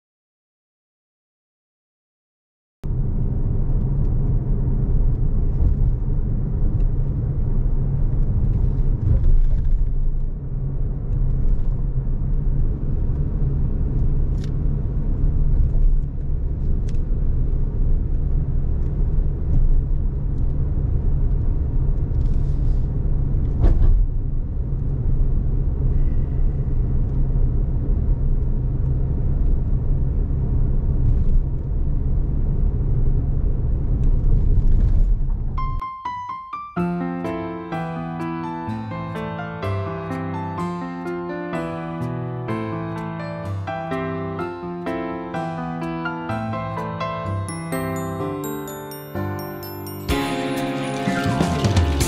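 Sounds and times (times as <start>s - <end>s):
low rumble: 2.8s - 35.8s.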